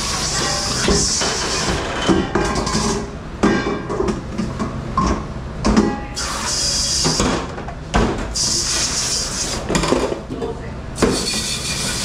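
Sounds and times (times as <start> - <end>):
dishes and utensils clattering: 0.1 - 6.1
hiss: 6.2 - 7.2, 8.4 - 9.6, 11.0 - 12.0.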